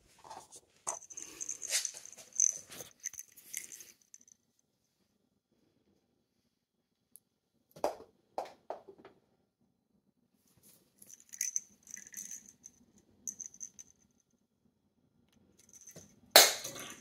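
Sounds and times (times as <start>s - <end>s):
jingling rattle of rolling ball: 0.9s - 4.4s, 11.0s - 14.2s, 15.6s - 17.0s.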